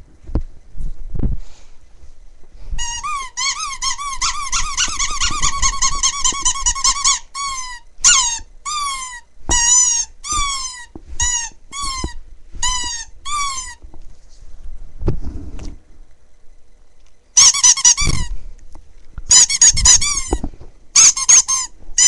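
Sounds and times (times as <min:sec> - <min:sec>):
rubber squeaky toy squeaking: 0:02.8 - 0:13.8, 0:17.4 - 0:18.3, 0:19.3 - 0:20.4, 0:21.0 - 0:22.0.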